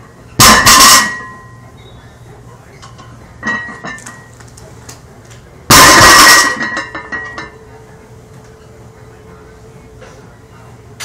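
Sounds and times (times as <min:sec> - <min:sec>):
iron plates clanging and rattling: 0:00.4 - 0:01.5, 0:02.9 - 0:04.3, 0:05.7 - 0:07.6
barbell crashing onto floor: 0:05.7 - 0:06.8.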